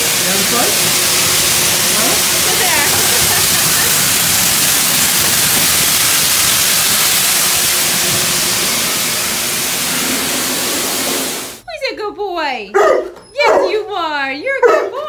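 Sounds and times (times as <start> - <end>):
pet dryer blasting air: 0.0 - 11.8.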